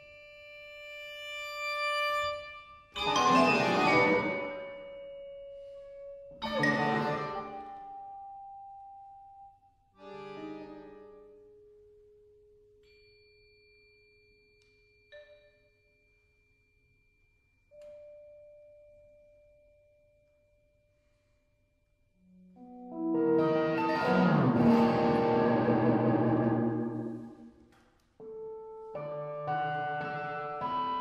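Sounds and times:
struck and plucked notes ringing: 23.0s - 27.4s.

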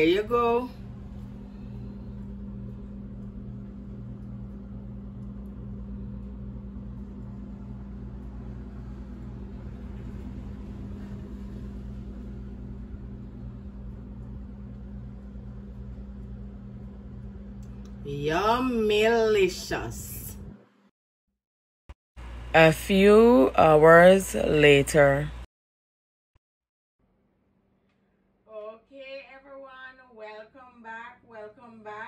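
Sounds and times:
kitchen appliance motor hum: 0.0s - 20.7s.

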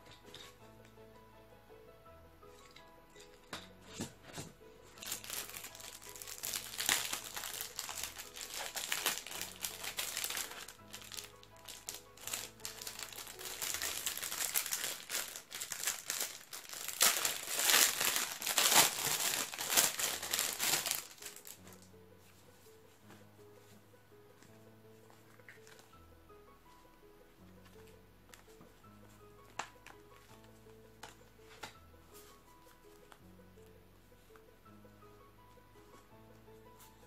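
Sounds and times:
faint background music: 0.0s - 37.0s
plastic packaging crinkling: 4.8s - 21.9s.

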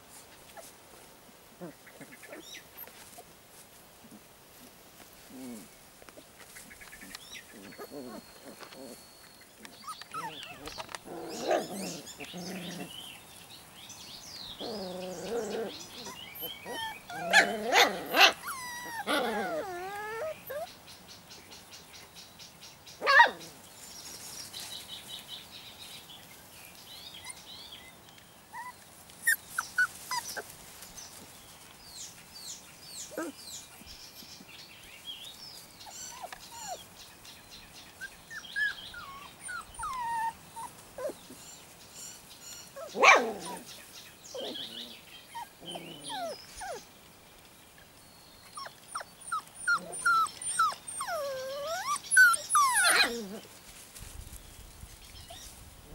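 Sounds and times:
puppies whining and yelping: 7.0s - 12.9s, 14.6s - 20.8s, 28.5s - 30.5s, 33.0s - 34.2s, 35.8s - 36.9s, 38.0s - 43.7s, 44.3s - 46.9s, 48.4s - 53.5s.

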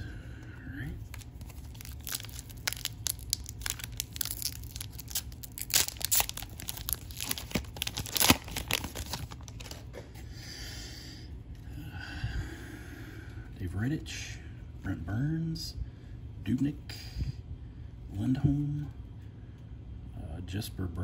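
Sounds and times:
foil wrapper crinkling and tearing: 1.0s - 9.9s.

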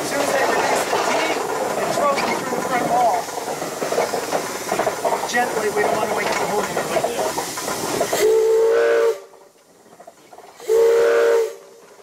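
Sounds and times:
steam hissing: 0.0s - 12.0s
steam whistle blasts: 8.2s - 9.3s, 10.6s - 11.7s.

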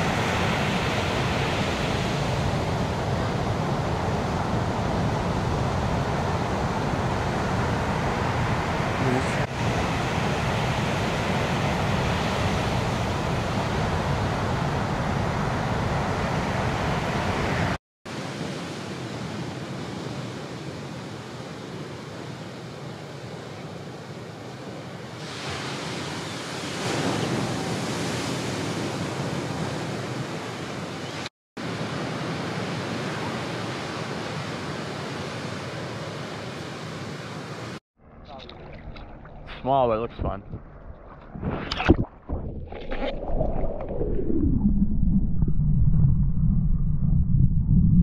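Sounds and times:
ocean surf: 0.0s - 37.8s
rushing water: 38.3s - 40.0s.

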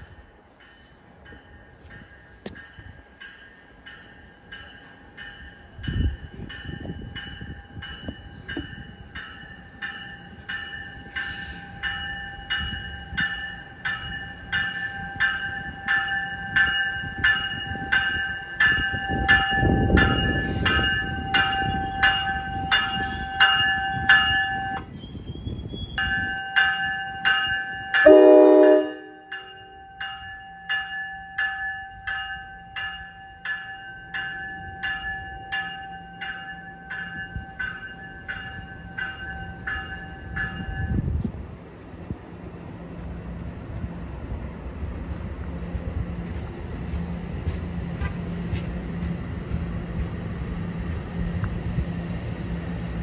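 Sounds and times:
train bell ringing: 0.0s - 41.3s
train wheels rumbling: 0.0s - 53.0s
train horn blast: 28.0s - 29.3s.

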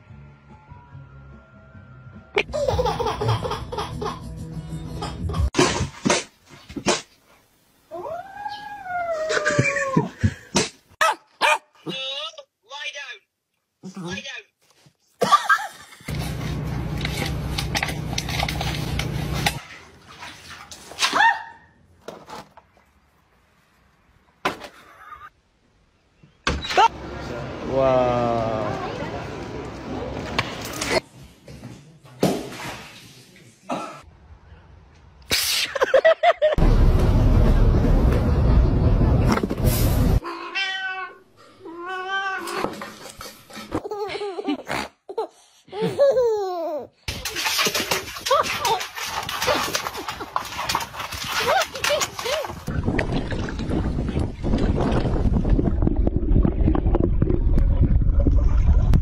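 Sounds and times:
loud rumbling noise: 36.6s - 40.2s
cat meowing: 40.2s - 42.6s.

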